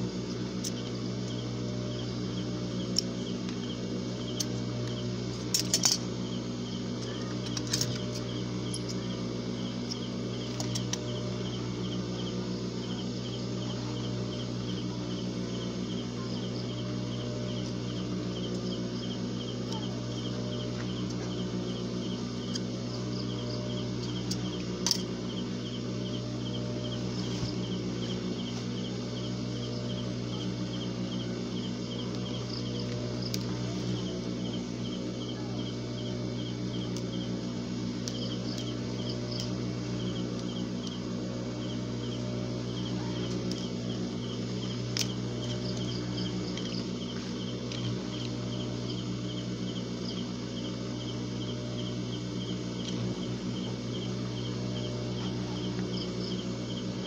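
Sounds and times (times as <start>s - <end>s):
low electric hum: 0.0s - 57.0s
crickets chirping: 0.6s - 57.0s.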